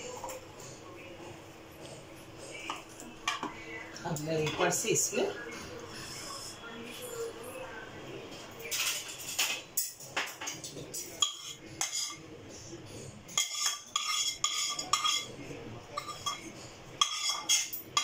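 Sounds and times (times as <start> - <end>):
spoon scraping a pan: 10.9 - 12.2, 13.3 - 18.0.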